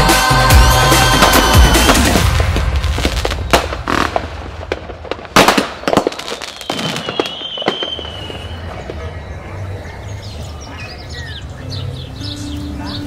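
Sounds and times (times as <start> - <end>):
music: 0.0 - 3.6, 11.0 - 13.0
firecrackers cracking and popping: 0.7 - 9.1
loud firecracker bang: 0.9 - 9.0.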